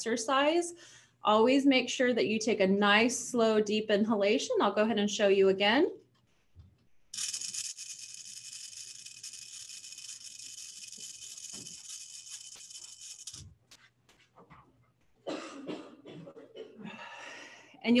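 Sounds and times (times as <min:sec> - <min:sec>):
breath let out: 0:16.8 - 0:17.8.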